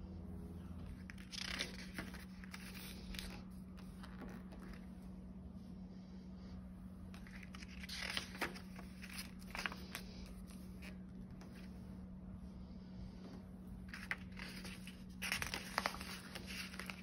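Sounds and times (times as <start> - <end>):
low steady hum: 0.0 - 17.0
sharp paper crackles: 0.8 - 4.9, 7.1 - 11.7, 13.8 - 17.0
paper rustling and crinkling: 0.8 - 5.0, 7.1 - 11.8, 13.8 - 17.0.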